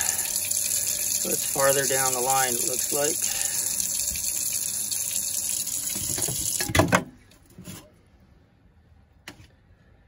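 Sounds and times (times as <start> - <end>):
faucet running into sink: 0.0 - 6.8.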